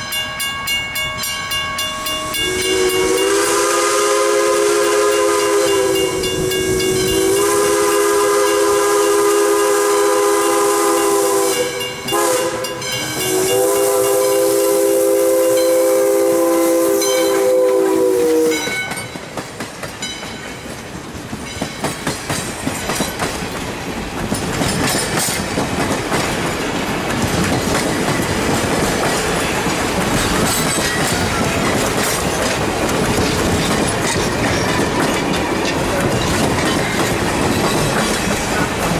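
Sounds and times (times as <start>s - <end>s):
steam whistle blasts: 2.4s - 18.9s
train wheels clicking over rail joints: 17.0s - 38.9s.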